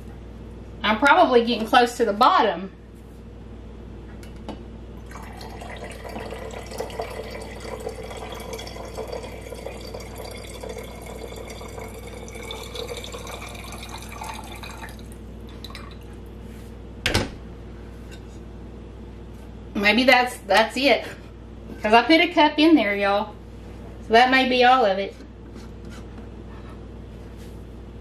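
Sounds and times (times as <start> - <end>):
liquid trickling into glass jar: 5.0 - 16.2.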